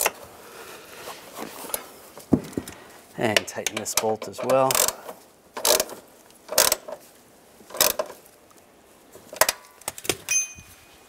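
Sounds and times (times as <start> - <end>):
hand ratchet clicking: 3.4 - 7.0, 7.7 - 8.1
light metallic clink: 10.3 - 10.9.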